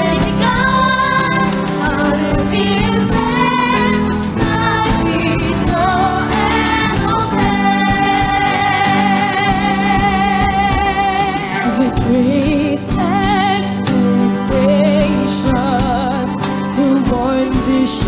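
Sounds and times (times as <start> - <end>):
young people singing: 0.0 - 13.6
backing music: 0.0 - 18.0.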